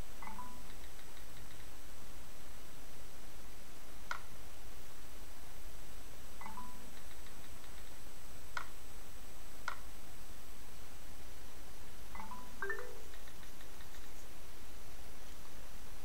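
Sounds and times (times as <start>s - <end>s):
sharp clicks: 0.6s - 1.7s, 12.8s - 14.2s.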